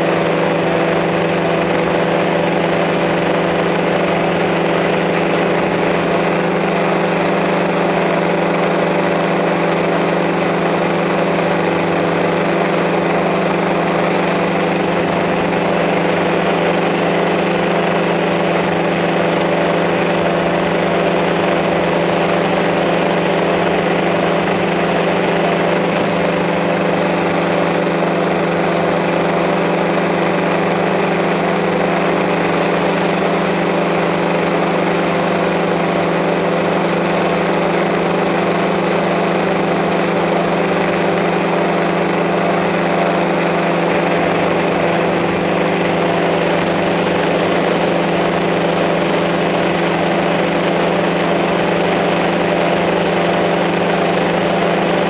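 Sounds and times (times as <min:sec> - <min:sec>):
drone propellers humming: 0:00.0 - 0:55.0.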